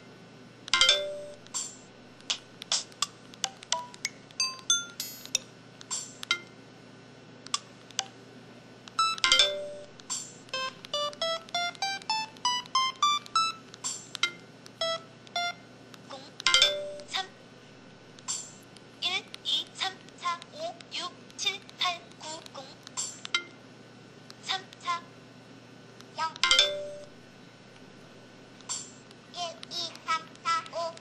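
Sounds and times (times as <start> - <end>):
phone keypad beeps: 9.0 - 9.9, 10.6 - 13.6, 14.2 - 15.6
rising scale of beeps: 14.8 - 15.6.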